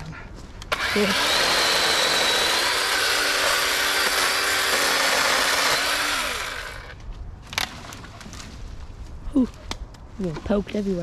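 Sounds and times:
chainsaw cutting branches: 0:00.6 - 0:08.2.

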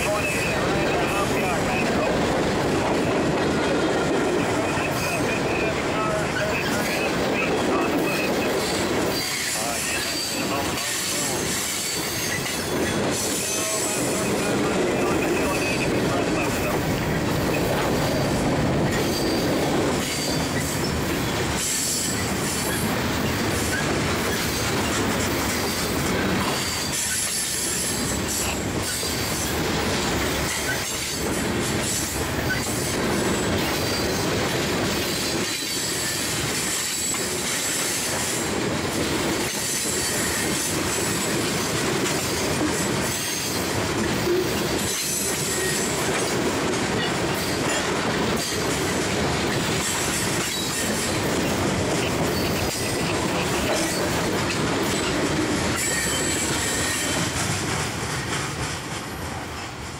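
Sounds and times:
steel wheels rumbling on rail: 0:00.0 - 0:59.9
high-pitched wheel squeal: 0:55.8 - 0:57.2.

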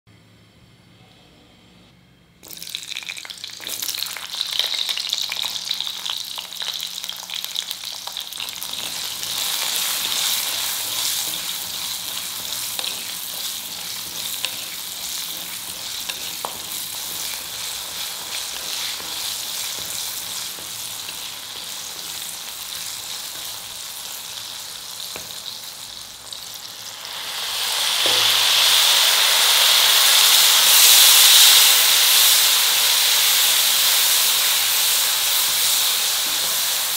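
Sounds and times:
vegetables sizzling in hot oil: 0:02.4 - 0:36.9
steaming hiss of oil: 0:26.9 - 0:36.9.

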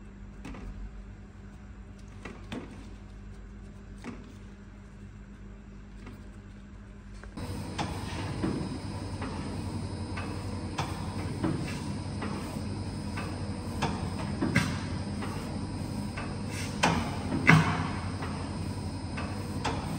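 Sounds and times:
machine humming: 0:07.4 - 0:19.9.

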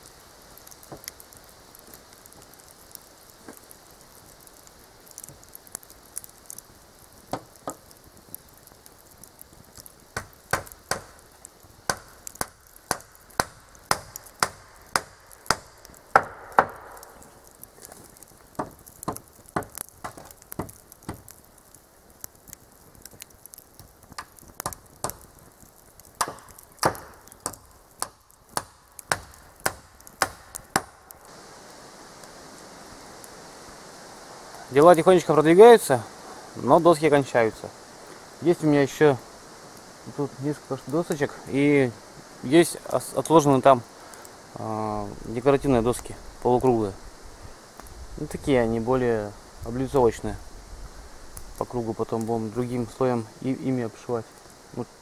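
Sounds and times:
hammer striking nails into wood: 0:16.2 - 0:17.0, 0:26.2 - 0:30.9.

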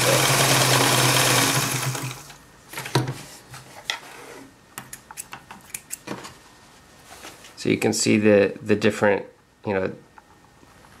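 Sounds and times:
sewing machine running fast: 0:00.0 - 0:02.3.

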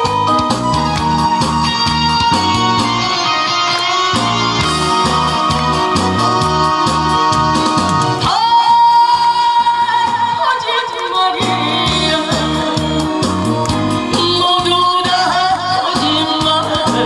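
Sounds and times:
musical backing track: 0:00.0 - 0:17.0
woman singing into microphone: 0:06.3 - 0:17.0.

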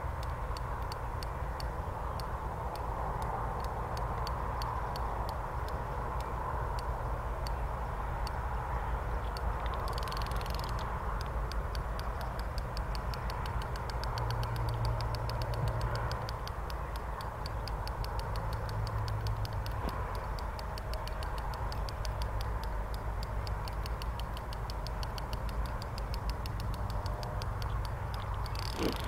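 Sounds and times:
fishing reel ticking: 0:09.3 - 0:29.0.

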